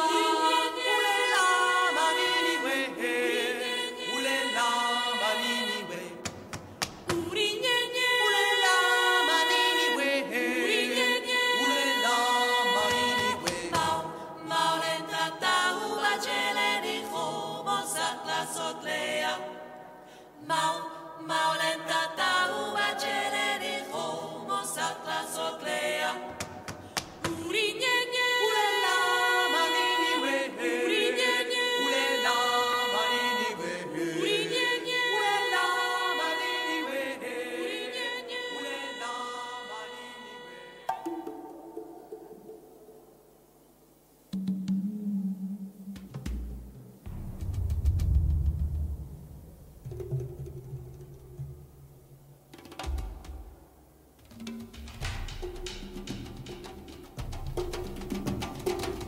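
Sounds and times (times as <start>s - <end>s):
choir singing a cappella: 0.0s - 42.6s
sharp percussive hits: 46.0s - 51.8s.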